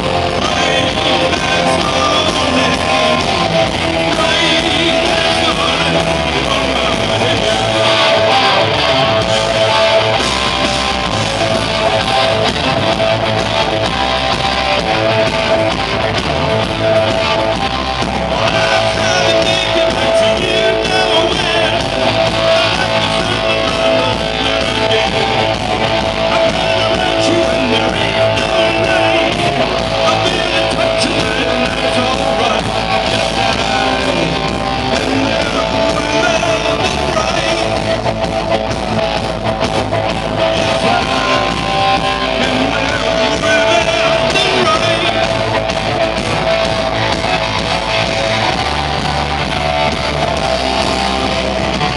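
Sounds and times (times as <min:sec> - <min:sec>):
person singing: 0:00.0 - 0:10.2, 0:18.2 - 0:38.2, 0:40.2 - 0:46.4
drum kit: 0:00.0 - 0:51.9
electric guitars: 0:00.0 - 0:51.9.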